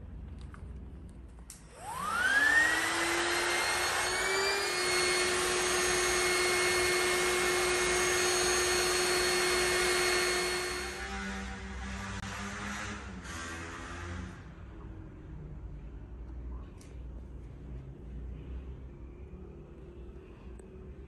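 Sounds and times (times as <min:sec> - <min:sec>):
electric air pump motor whine: 0:01.7 - 0:14.1.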